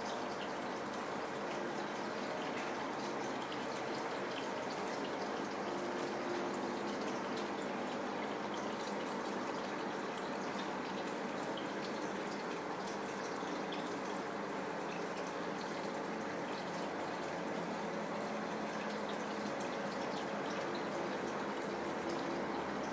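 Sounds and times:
faint pump hum: 0.0 - 22.9.

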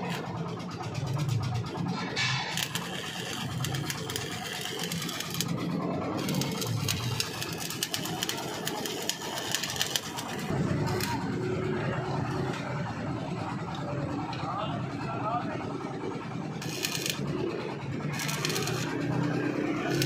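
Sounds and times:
welding arc crackling: 0.0 - 11.4, 16.6 - 20.0.

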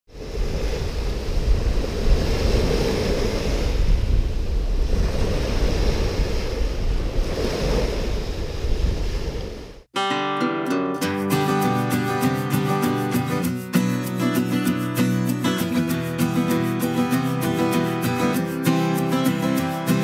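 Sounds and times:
waves washing on beach: 0.1 - 9.9, 11.3 - 20.0
wind rumbling on microphone: 0.1 - 9.9.

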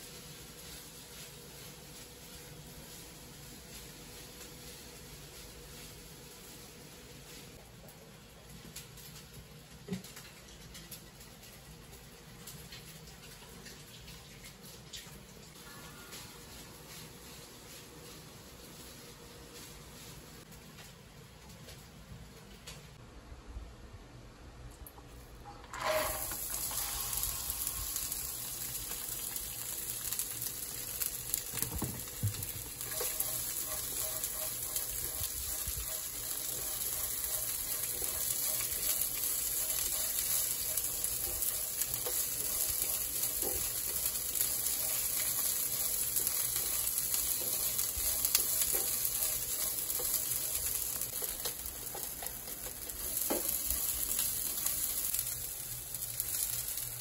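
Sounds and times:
bean sprouts sizzling in a pan: 0.0 - 14.0, 15.5 - 20.6, 25.8 - 57.0
spatula scraping a pan: 25.7 - 27.8, 32.4 - 54.7.

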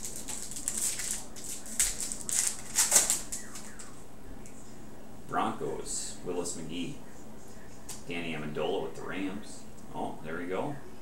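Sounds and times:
foil wrapper crinkling and tearing: 0.0 - 3.7.

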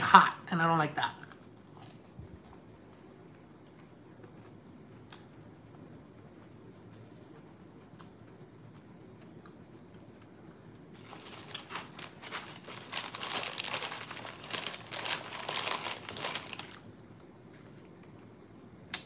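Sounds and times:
food bag crinkling: 11.0 - 16.9.

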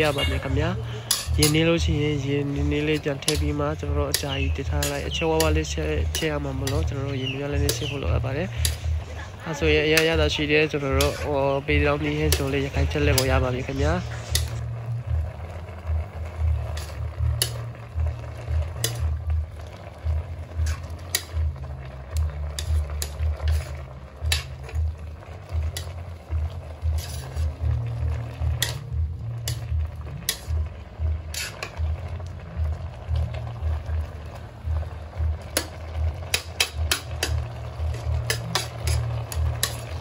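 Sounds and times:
metal spoon scraping a wok: 0.0 - 15.2, 15.9 - 32.1, 35.2 - 40.0
low rumble: 0.0 - 36.2.

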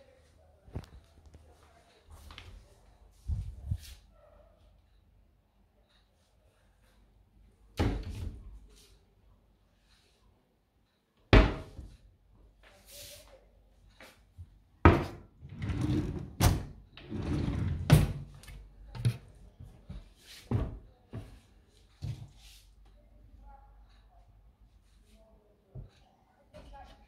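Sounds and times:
cabinet doors knocking: 11.4 - 11.7, 14.9 - 16.7
drawer sliding and scraping: 14.9 - 18.3.

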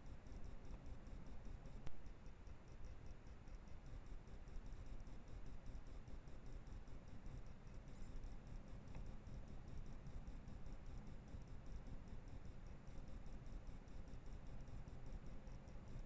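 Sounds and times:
faint high-pitched electronic ticking: 0.2 - 5.0.

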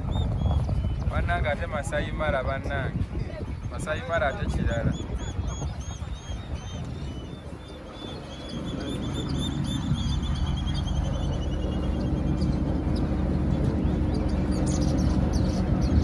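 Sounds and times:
boat motor running: 0.0 - 16.0
bird chirping: 4.7 - 16.0.

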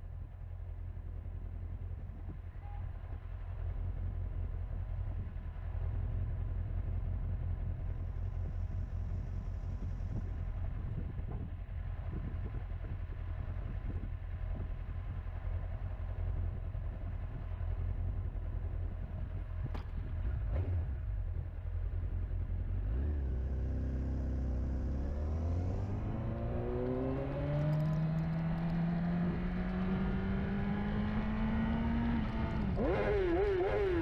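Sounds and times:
motorcycle engine idling: 0.0 - 22.8.

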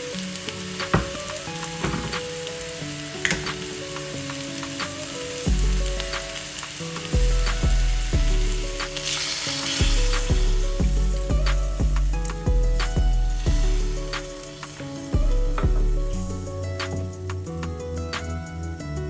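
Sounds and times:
juice pouring with hissing splash: 0.0 - 15.4
meat sizzling in a wok: 0.0 - 18.7
background music with bass beat: 4.7 - 19.0.

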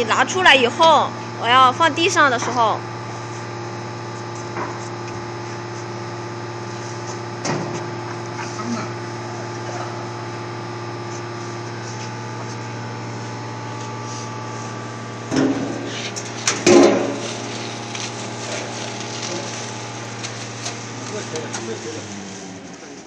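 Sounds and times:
low machine hum: 0.0 - 23.0
plastic film crinkling: 10.9 - 23.0.

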